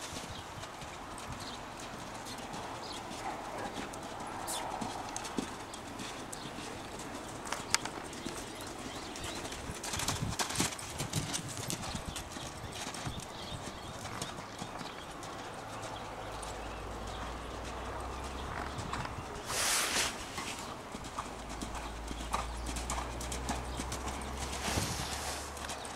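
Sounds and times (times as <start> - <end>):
hoofbeats on sand: 0.0 - 25.9
short loud rush of noise: 19.4 - 20.6, 24.6 - 25.5.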